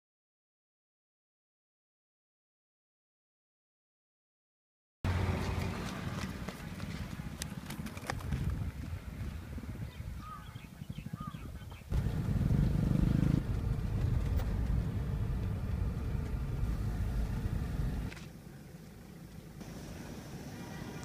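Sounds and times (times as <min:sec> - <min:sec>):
road noise: 0:05.1 - 0:21.0
vehicle engine rumble: 0:05.1 - 0:21.0.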